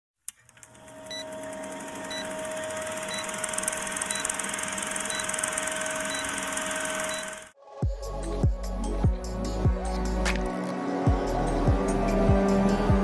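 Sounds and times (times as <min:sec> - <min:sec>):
film projector clicking and hissing: 0:00.3 - 0:07.6
short high beeps: 0:04.0 - 0:07.5.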